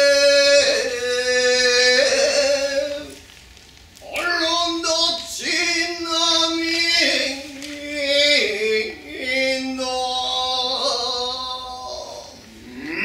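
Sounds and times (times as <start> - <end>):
man singing unaccompanied: 0.0 - 3.2, 4.0 - 13.0.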